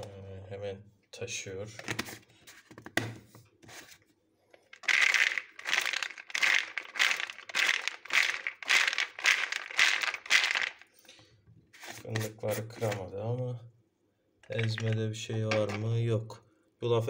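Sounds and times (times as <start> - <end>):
liquid sloshing in shaken bottle: 4.8 - 11.0.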